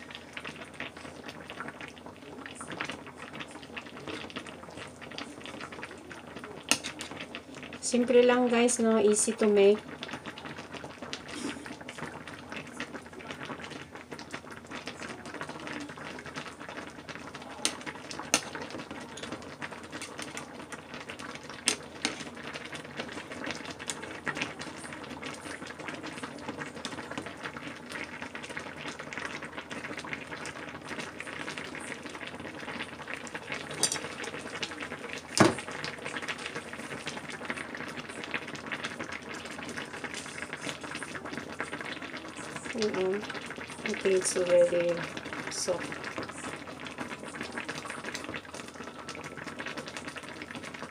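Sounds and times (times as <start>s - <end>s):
broth simmering in a pot: 0.0s - 50.9s
utensils clicking against pot: 33.7s - 34.1s.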